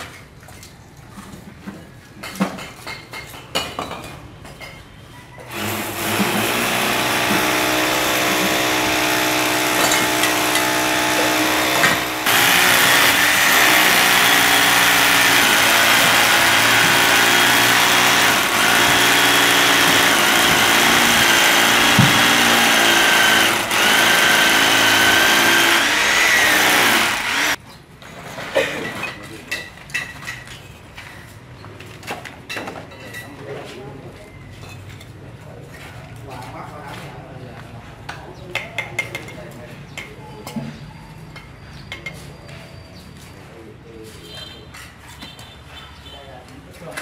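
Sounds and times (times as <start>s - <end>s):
small motor running: 5.5s - 27.6s.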